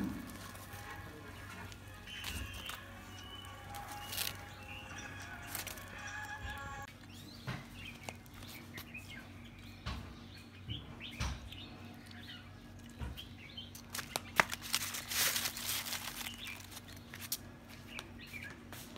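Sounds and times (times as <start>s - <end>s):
aluminium foil crinkling: 0.2s - 7.1s, 7.8s - 9.1s, 13.7s - 18.2s
small birds chirping: 1.4s - 14.9s, 15.8s - 18.9s.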